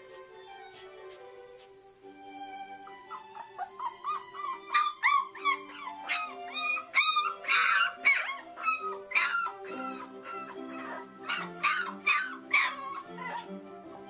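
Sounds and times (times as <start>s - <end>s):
puppy whining and yelping: 2.8s - 13.7s.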